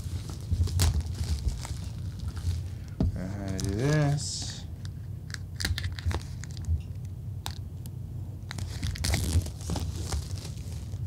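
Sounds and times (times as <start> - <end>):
plastic wrap crinkling and tearing: 0.0 - 4.2, 5.3 - 6.7, 8.5 - 11.0.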